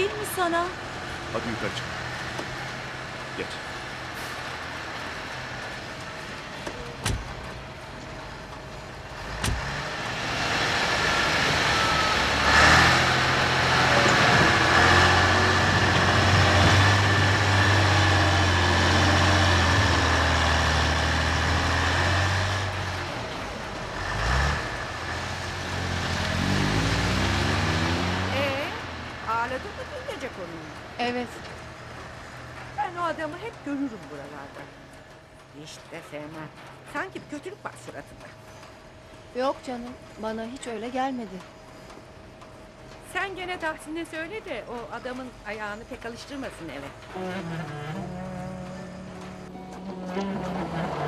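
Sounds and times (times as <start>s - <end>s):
car engine driving: 0.0s - 51.0s.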